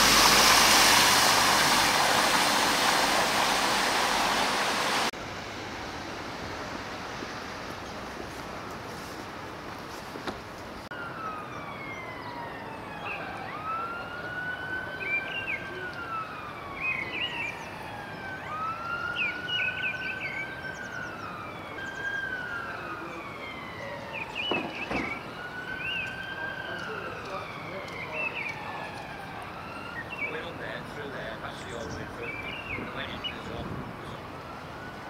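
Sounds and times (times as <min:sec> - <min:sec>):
emergency siren wailing: 0:00.0 - 0:05.1, 0:10.9 - 0:35.0.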